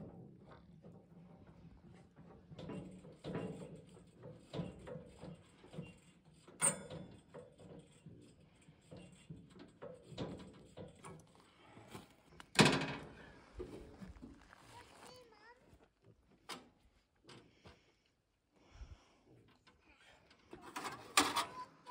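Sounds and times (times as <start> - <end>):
knocks and clunks: 12.4 - 14.4.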